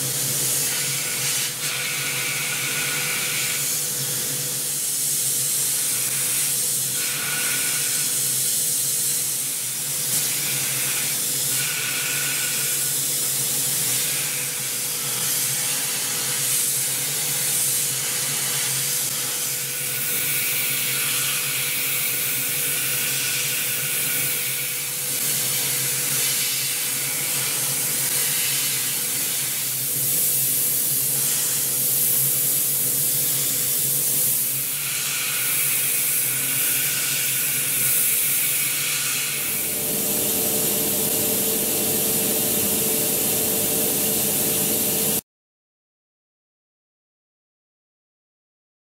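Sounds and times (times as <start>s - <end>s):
oil mist spray hissing: 27.2s - 45.2s
milling machine humming: 39.3s - 45.2s.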